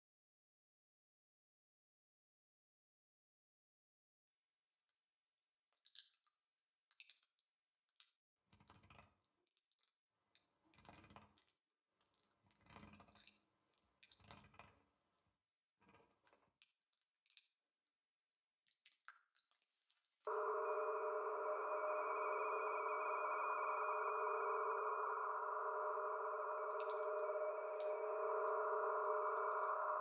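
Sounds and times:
steady electronic tone: 20.3 - 30.0.

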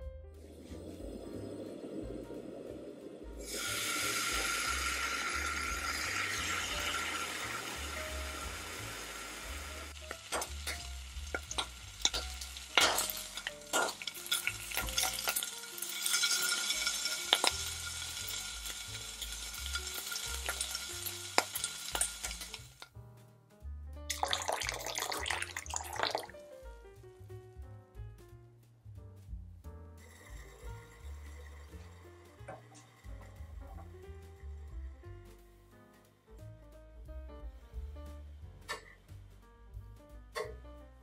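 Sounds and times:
bacon sizzling in a frying pan: 3.4 - 22.9, 24.1 - 26.3.

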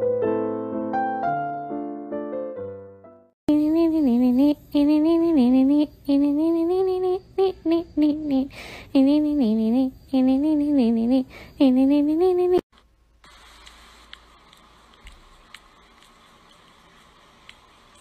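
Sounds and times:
person humming a wordless tune: 3.5 - 12.6.

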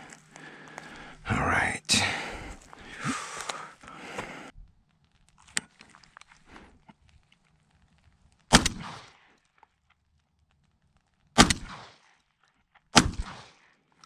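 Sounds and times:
shotgun blasts: 8.5 - 9.2, 11.4 - 12.1, 12.9 - 13.6.

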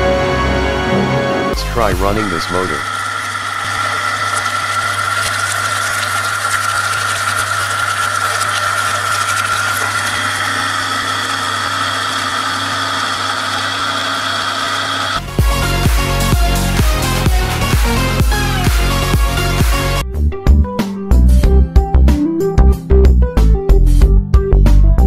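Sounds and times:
water pump motor humming and whining: 1.6 - 20.0
water gushing and splashing into tank: 2.8 - 15.2.

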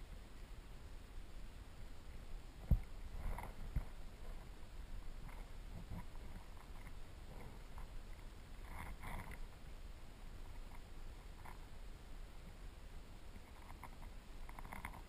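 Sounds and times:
faint underwater clicks and crackles: 2.6 - 12.6, 13.2 - 15.0.

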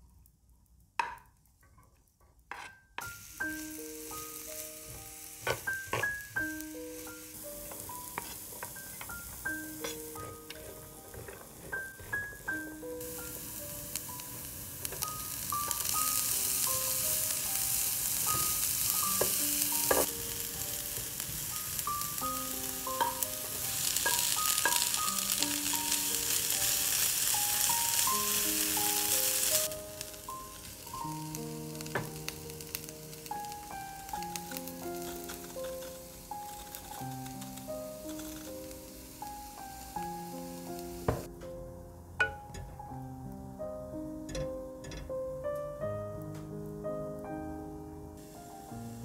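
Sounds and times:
wooden spatula stirring: 2.5 - 2.8, 7.6 - 12.6
vegetables sizzling in a frying pan: 2.6 - 41.4, 48.2 - 49.0
light plinking background music: 2.8 - 49.0.

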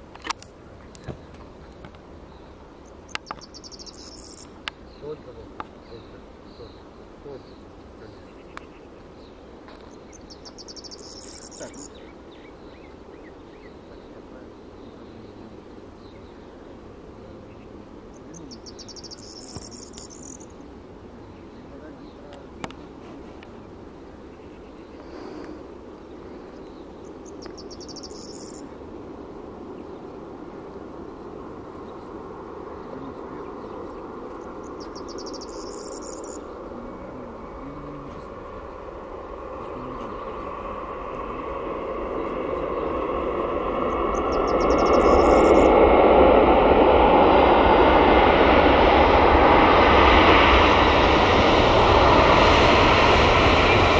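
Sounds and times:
jet airliner engine rumble: 0.0 - 53.9
small birds chirping: 0.3 - 45.8
high bird trill: 2.3 - 16.7, 17.4 - 22.2, 26.1 - 28.8, 32.7 - 37.8, 43.8 - 45.8
low rumble: 36.4 - 53.9.

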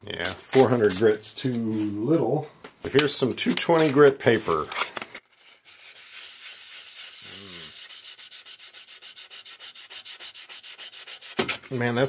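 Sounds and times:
sandpaper rubbing on metal: 5.6 - 12.0.

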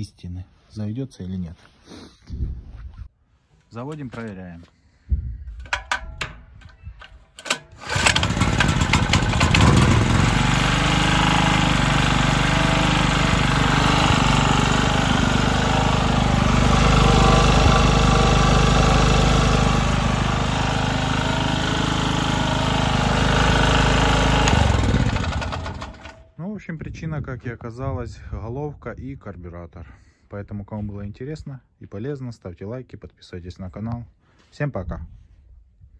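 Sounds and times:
generator engine cranking: 5.6 - 26.3
generator engine running: 7.4 - 26.2.

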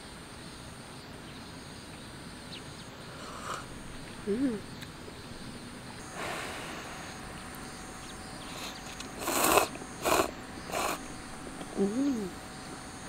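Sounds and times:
person slurping noodles: 8.5 - 11.1.

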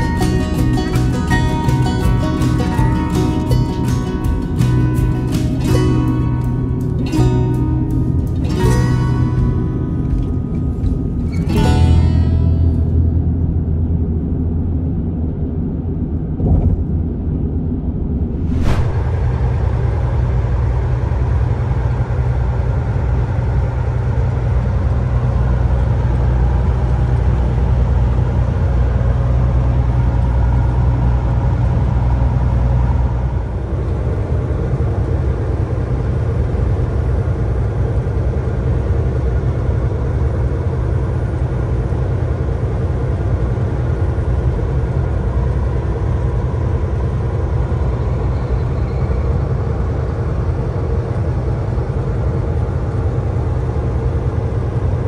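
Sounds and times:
vehicle engine running: 0.0 - 17.6.

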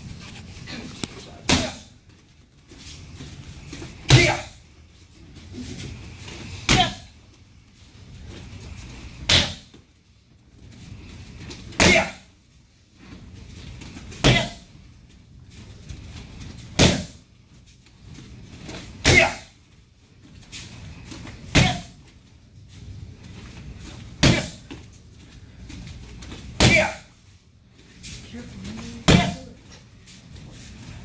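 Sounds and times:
kicks smacking a kicking shield: 16.8 - 17.2, 24.2 - 24.6.

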